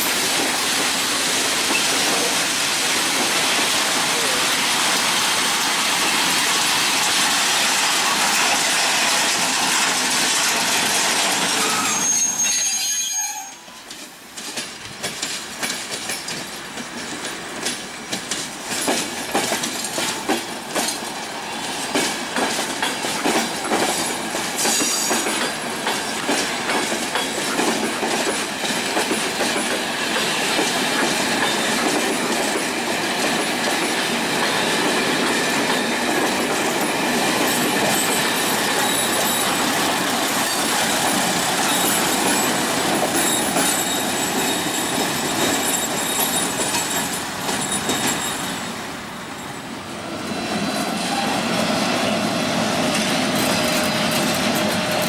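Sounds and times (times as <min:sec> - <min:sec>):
freight train rumbling: 0:00.0 - 0:55.0
wheels squealing: 0:11.6 - 0:13.9, 0:40.4 - 0:48.6
wheels clacking over rail joints: 0:13.7 - 0:48.9.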